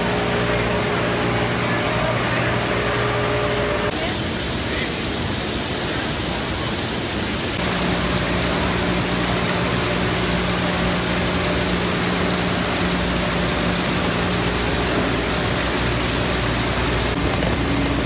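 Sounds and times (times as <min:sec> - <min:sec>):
low motor hum: 0:00.0 - 0:03.9, 0:07.6 - 0:18.0
oranges rattling on roller conveyors: 0:00.0 - 0:18.0.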